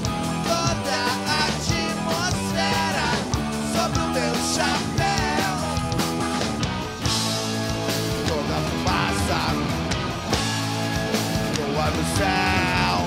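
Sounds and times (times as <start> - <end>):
drums: 0.0 - 13.0
electric guitars: 0.0 - 13.0
man singing: 0.3 - 6.0, 8.2 - 9.9, 11.5 - 13.0.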